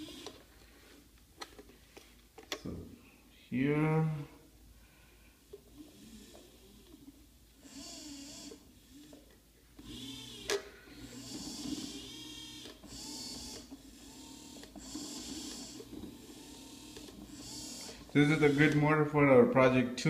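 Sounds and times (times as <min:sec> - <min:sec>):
gearmotors whirring: 0:00.0 - 0:01.0, 0:05.4 - 0:19.5.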